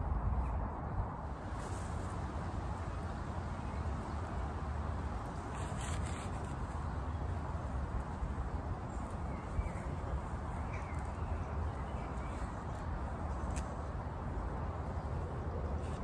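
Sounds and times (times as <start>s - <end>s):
low outdoor background noise: 0.0s - 16.0s
leaves rustling as stripped: 3.9s - 15.2s.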